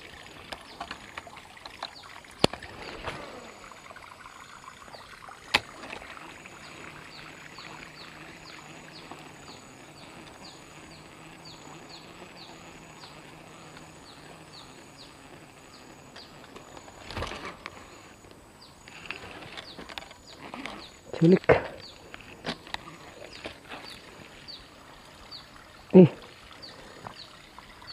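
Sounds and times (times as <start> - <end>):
soft steady hiss: 0.0 - 27.9
buzzing pulse: 1.8 - 21.2.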